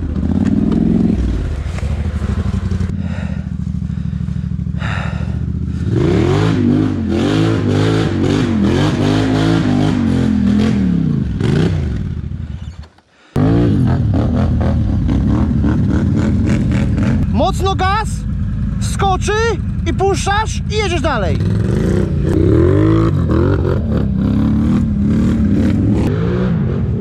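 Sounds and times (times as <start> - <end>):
atv engine revving: 0.0 - 27.0.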